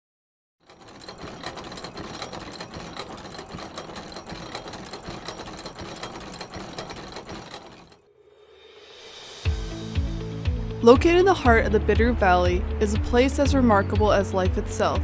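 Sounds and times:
machine clattering and whirring: 0.6s - 8.0s.

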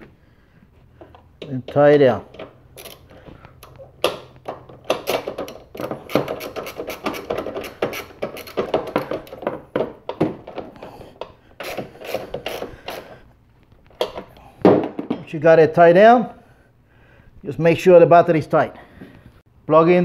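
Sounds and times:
ratchet wrench clicking: 2.4s - 3.1s, 4.9s - 9.4s.

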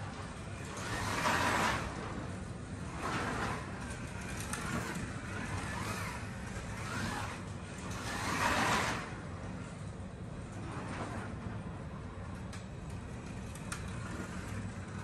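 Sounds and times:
slot car motor whining: 2.9s - 9.4s.

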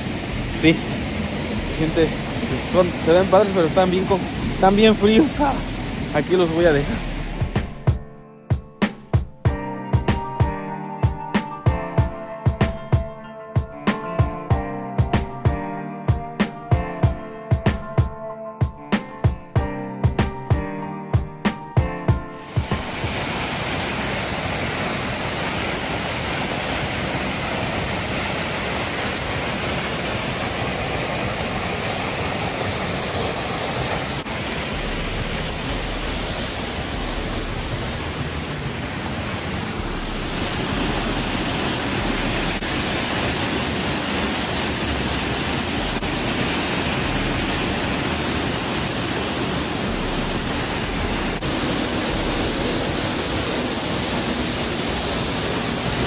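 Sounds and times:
waterfall rushing and splashing: 0.0s - 7.9s, 22.4s - 56.0s.

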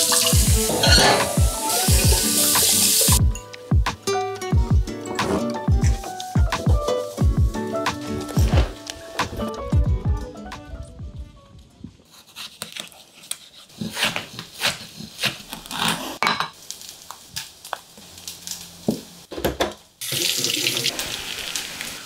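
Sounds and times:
kitchen tap running: 0.0s - 3.2s, 20.0s - 22.0s.

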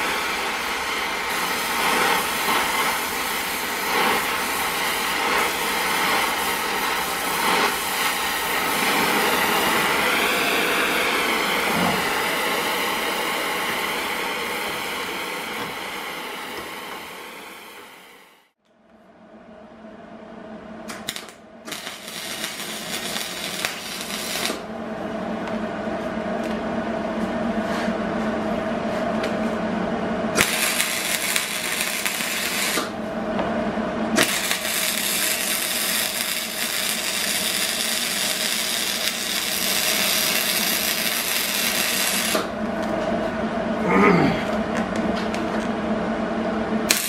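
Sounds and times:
welding arc crackle: 0.0s - 18.0s, 20.9s - 24.7s, 30.4s - 33.0s, 34.2s - 42.5s
welder hum: 0.0s - 18.6s, 20.8s - 29.6s, 30.3s - 47.0s.

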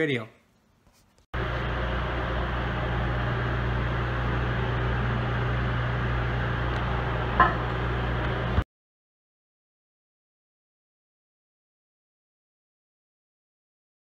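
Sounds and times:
machine humming: 1.4s - 8.6s.

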